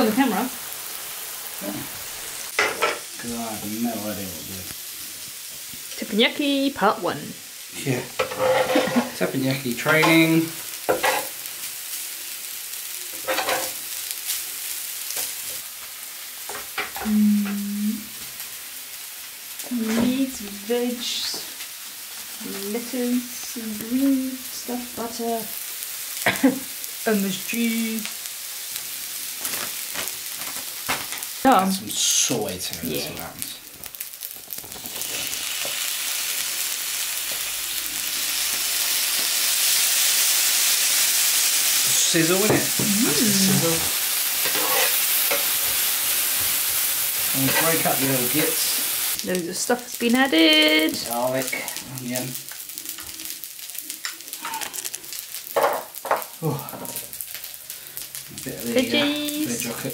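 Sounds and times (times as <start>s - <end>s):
rice sizzling on grill: 0.0s - 59.9s
spatulas scraping metal plate: 8.2s - 9.1s.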